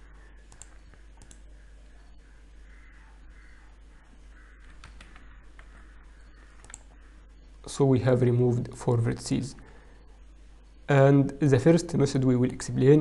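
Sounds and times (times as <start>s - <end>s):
low steady hum: 0.0s - 13.0s
computer mouse clicks: 0.5s - 1.5s, 4.6s - 5.9s, 6.5s - 7.0s.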